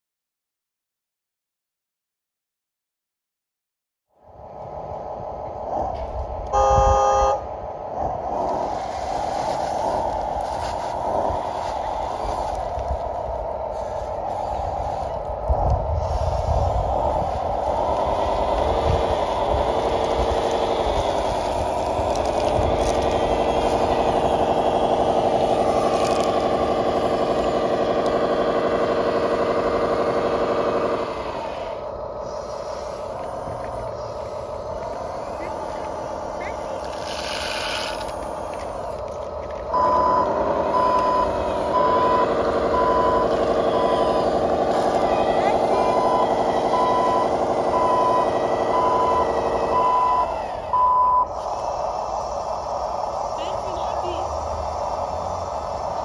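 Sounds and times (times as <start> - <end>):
simulated diesel engine from speaker: 4.2 - 56.0
reversing beeper: 6.5 - 7.4, 39.7 - 51.4
dull hiss: 31.7 - 39.2, 50.5 - 56.0.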